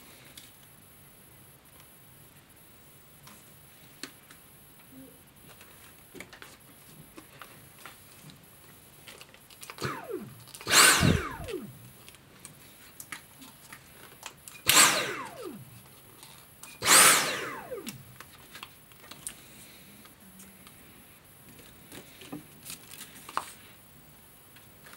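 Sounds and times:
vacuum motor whine: 9.7 - 12.1, 14.6 - 16.0, 16.8 - 18.3.

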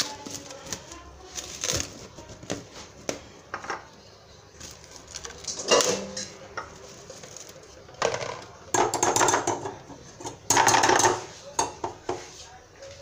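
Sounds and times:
plastic cling film crinkling: 0.0 - 3.3, 4.5 - 6.0, 6.7 - 8.5.

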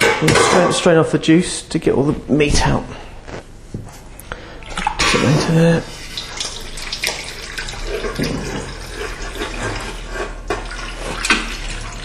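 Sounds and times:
liquid pouring through strainer: 4.7 - 12.0.

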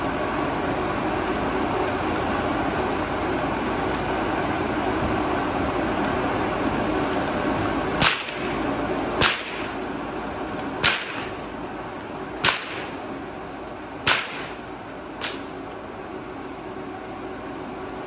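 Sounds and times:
blower fans whirring: 0.0 - 18.0
whip cracking: 8.0 - 8.6, 9.2 - 9.8, 10.8 - 11.4, 12.4 - 13.0, 14.0 - 14.6, 15.2 - 15.6.

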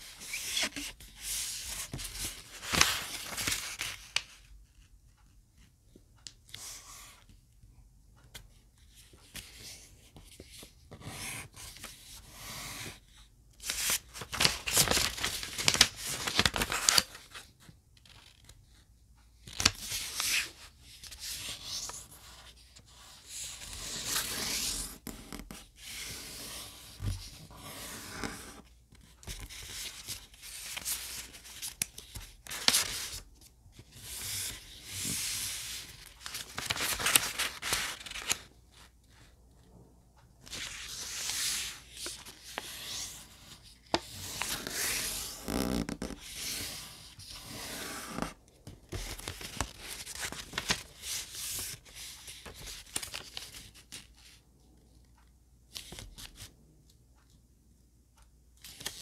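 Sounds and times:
paper rustling and crinkling: 0.1 - 4.4, 13.6 - 18.5, 29.2 - 38.9, 40.4 - 54.2.

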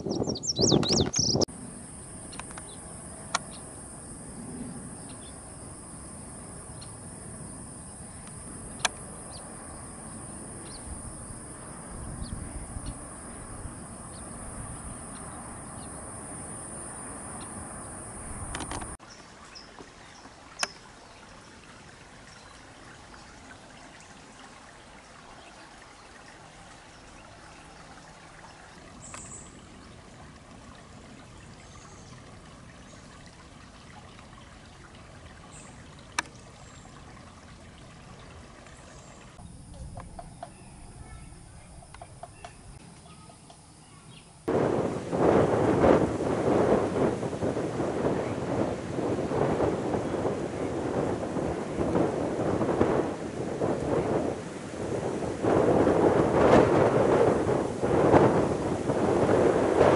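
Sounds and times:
high chirp: 0.1 - 1.5
high-pitched hiss: 1.4 - 19.0
sharp clicks: 8.2 - 9.1, 18.5 - 19.0.

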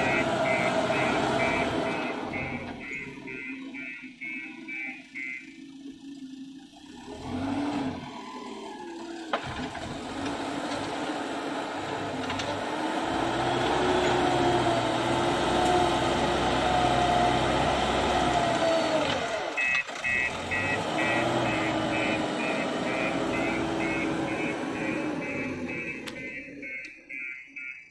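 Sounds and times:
reversing alarm beeping: 0.0 - 6.2, 16.6 - 27.9
diesel engine working: 0.0 - 27.6.

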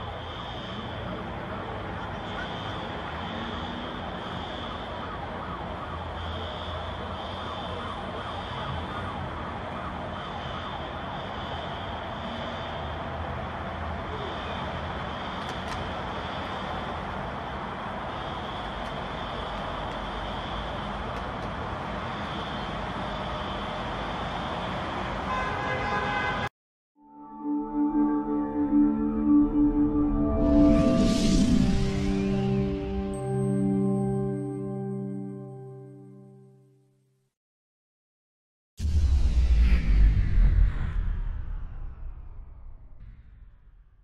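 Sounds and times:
city noise: 0.0 - 26.5, 27.1 - 36.9
siren wailing: 1.5 - 12.9.

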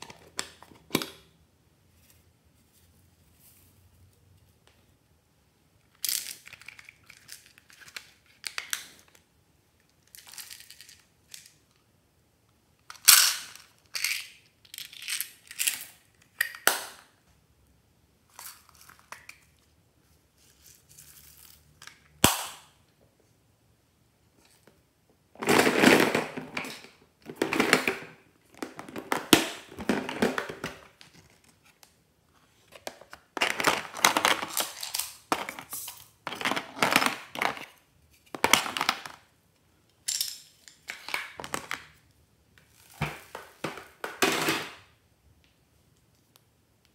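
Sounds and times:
plastic toys rattling and clicking: 5.9 - 9.0, 33.3 - 39.3.

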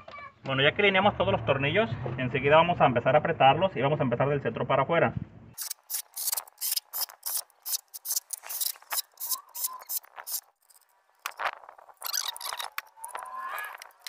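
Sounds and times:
hand ratchet clicking: 5.6 - 11.4.

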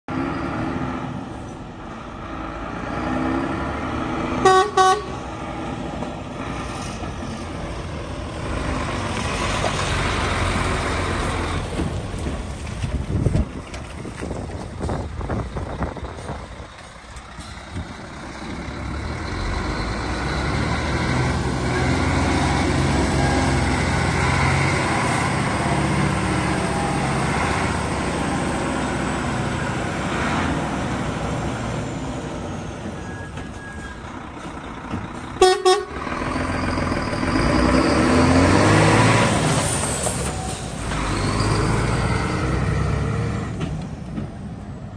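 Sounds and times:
truck diesel engine driving past: 0.1 - 44.9
truck horn toots: 4.4 - 5.3, 35.4 - 36.1.

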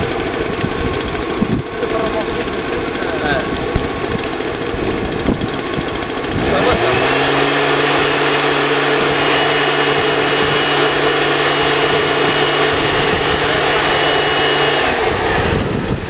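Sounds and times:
motor hum with rushing air: 0.0 - 16.0.

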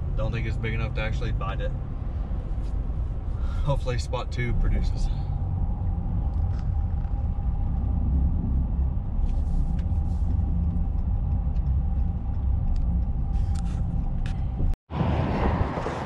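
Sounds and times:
engine and tyre rumble: 0.0 - 16.0.

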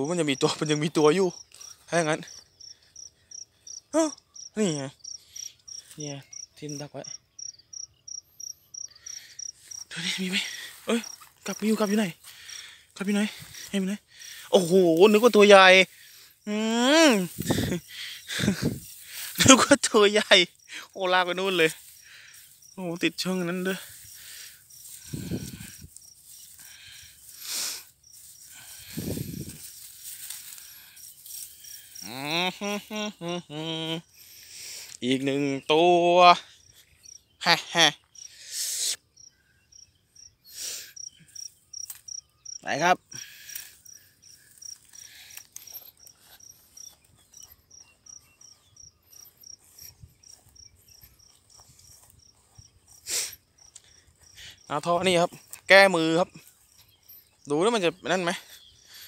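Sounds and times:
man speaking: 0.0 - 2.3, 6.0 - 7.1, 9.9 - 21.8, 22.8 - 23.9, 35.0 - 36.4, 54.7 - 56.4, 57.5 - 58.5
insects chirping: 0.0 - 59.0
footsteps through grass: 9.6 - 16.4, 17.1 - 32.3, 43.2 - 58.6
dry straw rustling: 14.4 - 16.0, 18.3 - 20.4, 21.1 - 32.2.

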